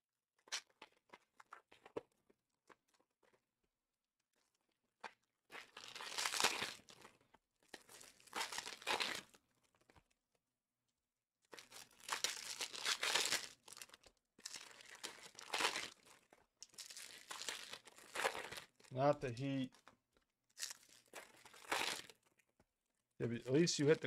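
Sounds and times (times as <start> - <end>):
foil wrappers crinkling and tearing: 5.5 - 9.4, 11.5 - 20.0, 20.6 - 22.4.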